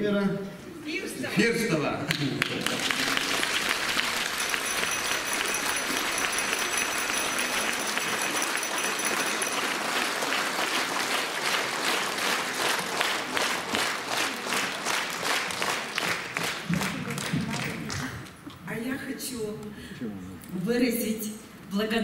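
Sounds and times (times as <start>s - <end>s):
audience applauding: 2.1s - 18.4s.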